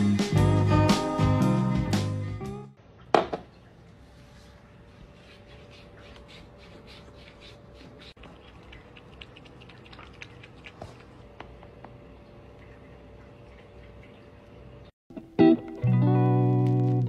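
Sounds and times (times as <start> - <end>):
cat lapping water: 5.4 - 14.9.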